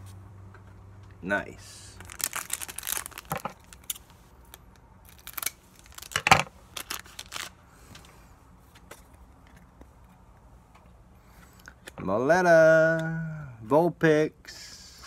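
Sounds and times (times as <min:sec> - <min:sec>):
cards and foil wrapper rustling: 0:01.9 - 0:08.0.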